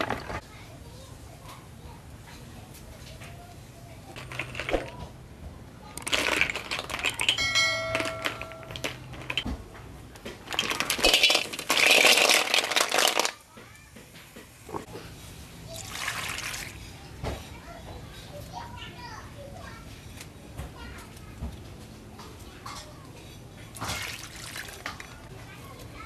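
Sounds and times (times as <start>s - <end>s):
snail shells clattering: 4.2s - 5.0s, 6.0s - 9.4s, 10.4s - 13.4s
snails tipped into metal wok: 6.0s - 9.4s, 10.5s - 13.4s.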